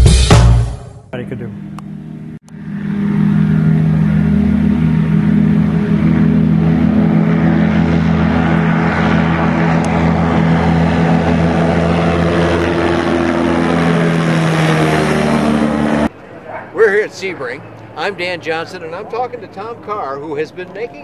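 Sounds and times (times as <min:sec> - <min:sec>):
light aircraft engine drone: 0:01.2 - 0:21.0.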